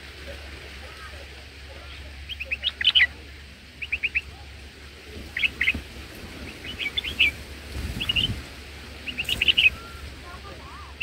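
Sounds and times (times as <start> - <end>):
bird chattering calls: 2.2 - 4.3, 5.3 - 5.8, 6.4 - 8.4, 9.0 - 10.1.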